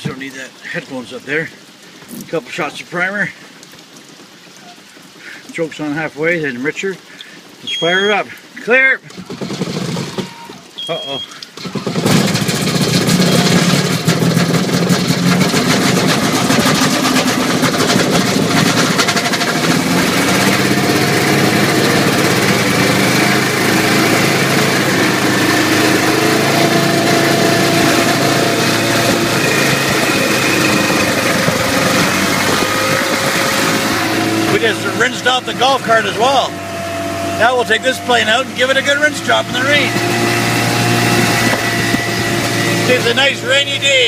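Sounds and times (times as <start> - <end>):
aircraft piston engine running: 11.8 - 44.0.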